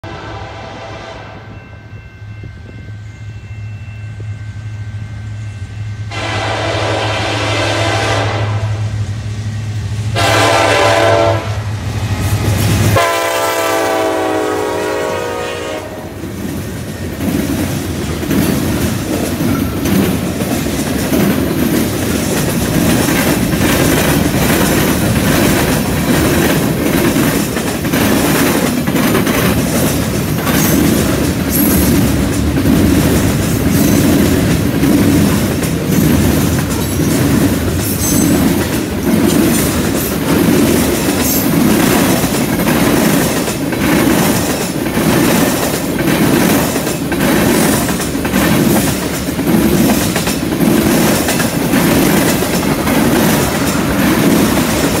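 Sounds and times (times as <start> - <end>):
train horn blasts: 0.0 - 2.0, 6.1 - 9.0, 10.1 - 11.8, 12.9 - 16.2
locomotive engine drone: 0.0 - 14.0
train wheels clacking on rails: 9.6 - 55.0.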